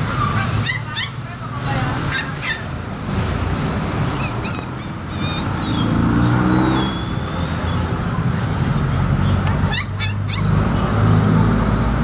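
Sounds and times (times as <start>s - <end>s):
street traffic rumble: 0.0s - 12.0s
vehicle engine running: 0.0s - 12.0s.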